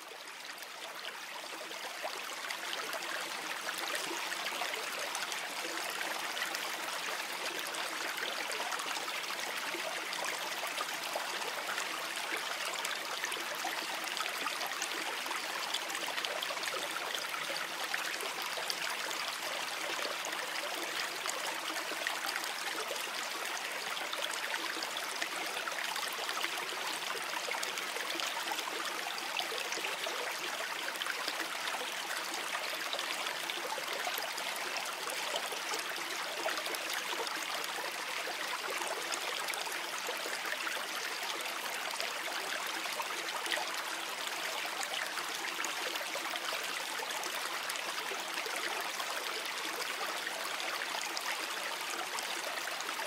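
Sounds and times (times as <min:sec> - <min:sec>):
water flowing over stones: 0:00.0 - 0:53.0.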